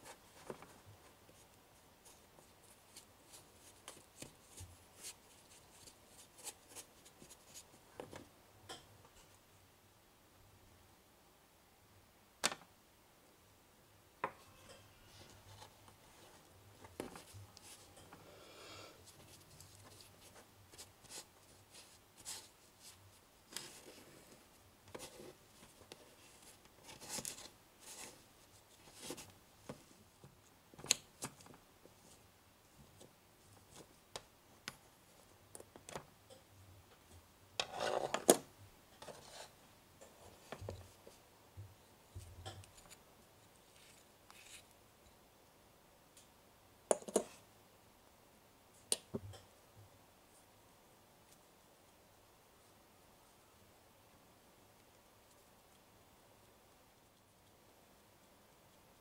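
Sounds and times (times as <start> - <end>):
plastic spoon scraping glass bowl: 37.6 - 38.2.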